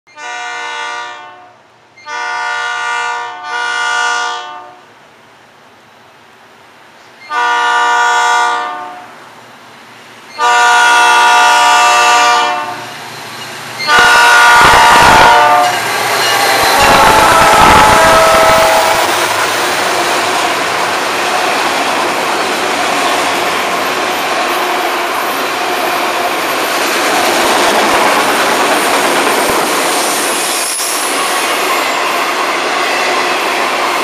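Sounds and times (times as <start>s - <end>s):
locomotive air horn blasts: 0.1s - 4.8s, 7.3s - 9.1s, 10.4s - 12.9s, 13.8s - 19.2s.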